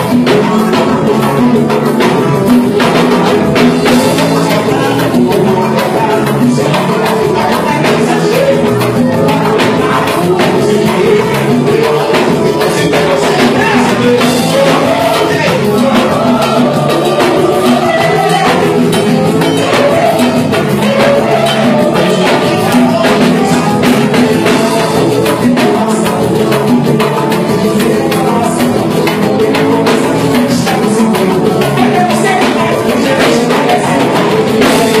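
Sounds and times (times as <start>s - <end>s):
hand drums and percussion beat: 0.0s - 35.0s
men singing into microphones: 0.0s - 35.0s.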